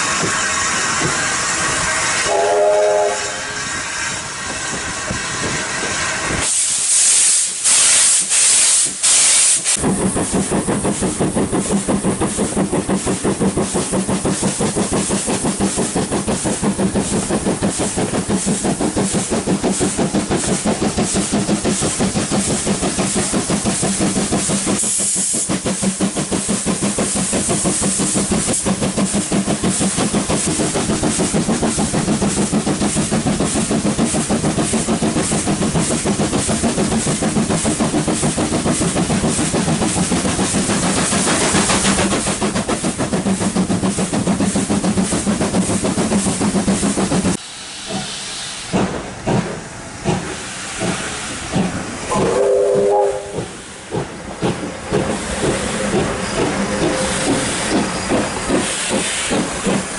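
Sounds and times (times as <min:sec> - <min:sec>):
steam locomotive whistle: 0:00.0 - 0:09.6, 0:52.1 - 0:53.6
steam hissing bursts: 0:00.0 - 0:59.9
train rumble: 0:00.0 - 0:59.9
locomotive exhaust beats: 0:09.7 - 0:48.1, 0:48.7 - 0:59.9.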